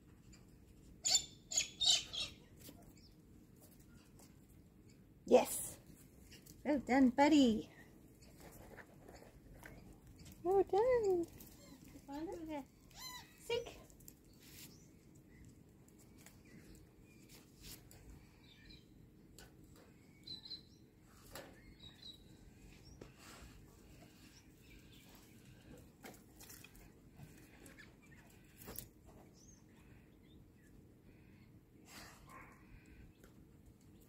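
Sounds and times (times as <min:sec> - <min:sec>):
bird chirps: 0:20.0 - 0:20.8, 0:21.5 - 0:23.0.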